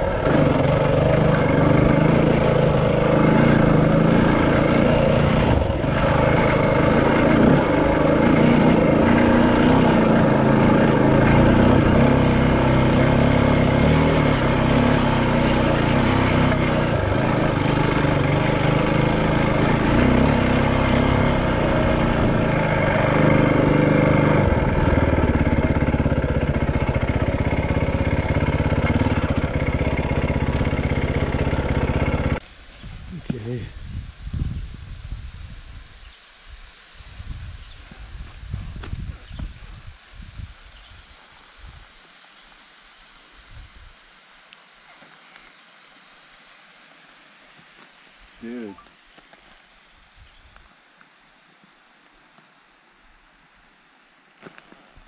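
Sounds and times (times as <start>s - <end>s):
dirt bike engine: 0.0s - 32.5s
wind and tyre noise: 0.0s - 48.4s.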